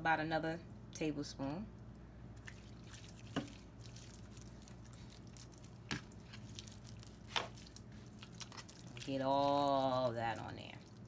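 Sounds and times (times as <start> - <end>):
hand squishing raw meat: 2.4 - 11.0.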